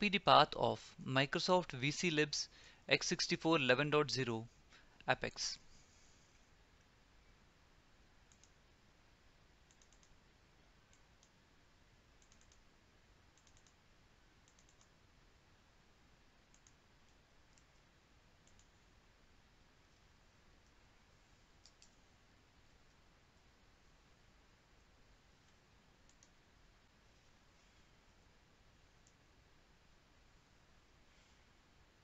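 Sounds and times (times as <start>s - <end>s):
faint computer mouse clicks: 8.3s - 8.6s, 9.6s - 10.2s, 10.9s - 11.4s, 12.2s - 12.7s, 13.3s - 13.8s, 14.4s - 15.0s, 16.5s - 18.8s, 21.6s - 22.0s, 25.4s - 26.4s.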